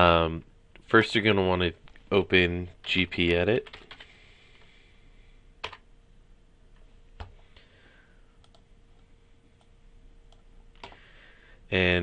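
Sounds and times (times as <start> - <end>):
faint steady hum: 0.0 - 12.0
keyboard and mouse clicks: 8.4 - 8.7, 10.3 - 11.0.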